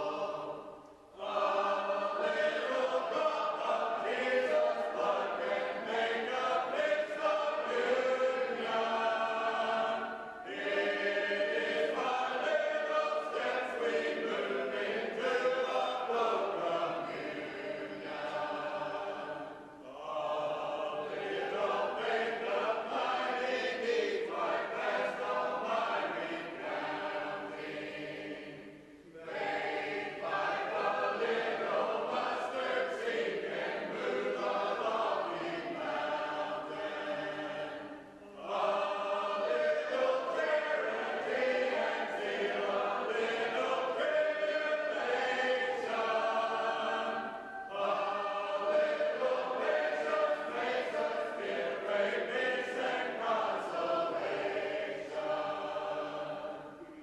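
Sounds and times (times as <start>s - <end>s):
group singing a cappella: 0.0s - 57.0s.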